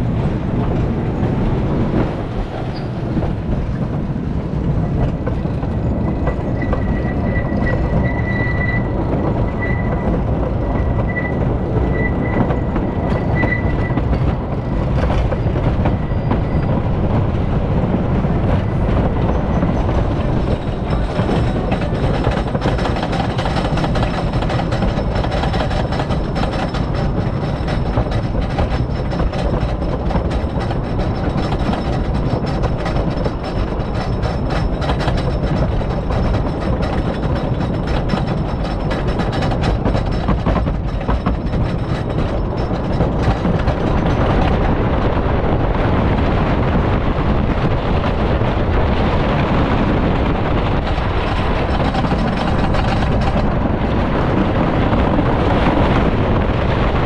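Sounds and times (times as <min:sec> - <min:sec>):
roller coaster wheel rumble: 0:00.0 - 0:57.0
thin wheel squeal: 0:05.8 - 0:10.1, 0:10.7 - 0:14.0
lift chain clicking clatter: 0:19.8 - 0:44.7, 0:50.8 - 0:53.6.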